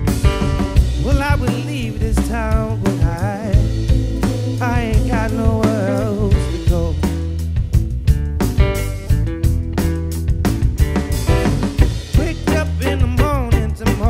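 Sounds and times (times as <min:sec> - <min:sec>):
drum kit: 0:00.0 - 0:14.0
electric bass: 0:00.0 - 0:14.0
electric guitar: 0:00.0 - 0:14.0
man singing with vibrato: 0:00.9 - 0:07.3, 0:12.1 - 0:14.0.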